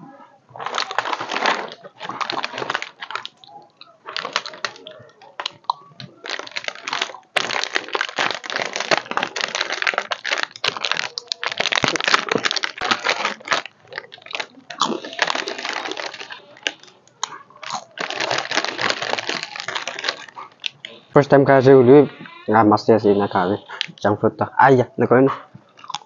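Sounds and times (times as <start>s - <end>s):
plastic packet crinkling and tearing: 0.6s - 21.0s, 23.7s - 24.0s.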